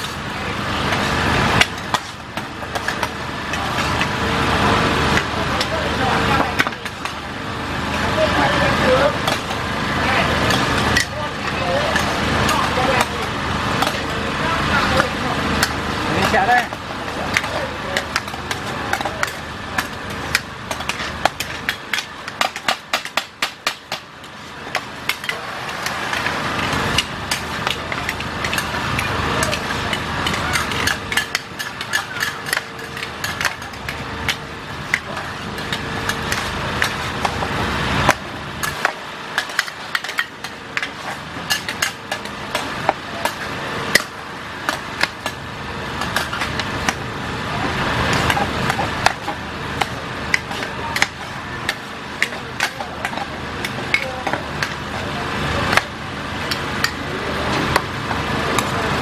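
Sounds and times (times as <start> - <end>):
metal spatulas clanking on wok: 24.7 - 37.4, 38.1 - 45.4.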